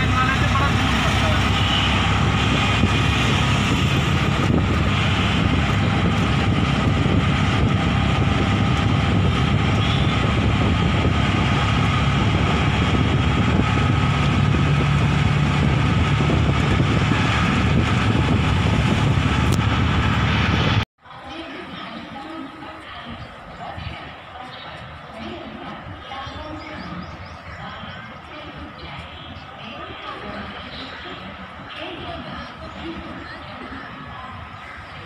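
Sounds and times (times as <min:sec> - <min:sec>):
auto-rickshaw engine running: 0:00.0 - 0:20.8
road and wind noise: 0:00.0 - 0:35.0.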